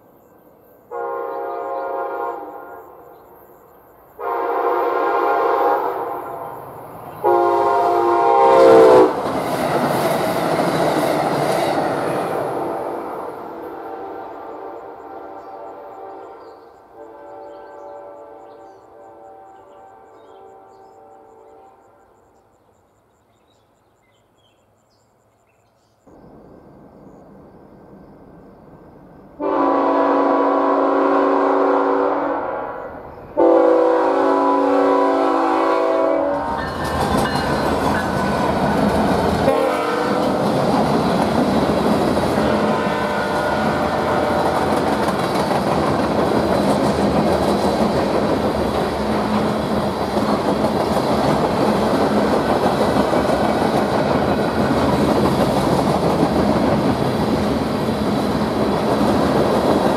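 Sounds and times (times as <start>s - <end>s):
locomotive air horn blasts: 0.9s - 3.0s, 4.2s - 6.5s, 7.2s - 9.2s, 12.5s - 21.8s, 29.4s - 36.6s, 39.4s - 40.4s, 42.4s - 44.6s
train wheels clattering on rails: 9.1s - 12.8s, 36.4s - 59.9s.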